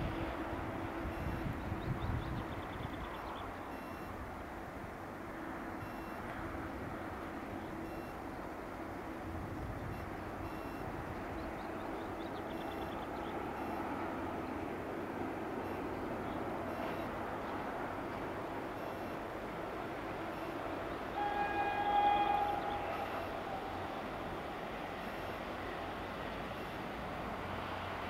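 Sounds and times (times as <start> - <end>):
diesel locomotive rumble: 0.0 - 28.0
faint high beep: 1.0 - 1.7, 2.9 - 4.2, 5.8 - 6.3, 7.8 - 8.2, 9.8 - 11.0, 12.2 - 14.0, 15.6 - 17.2, 18.7 - 19.2, 20.3 - 25.5, 26.5 - 26.9
birds chirping: 1.4 - 3.8, 9.5 - 18.4, 20.2 - 24.7.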